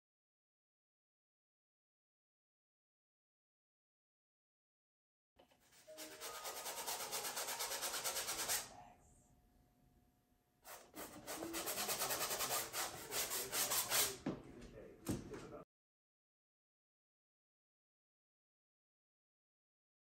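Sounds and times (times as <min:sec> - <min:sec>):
paintbrush scrubbing canvas: 0:05.6 - 0:08.7, 0:10.7 - 0:14.2.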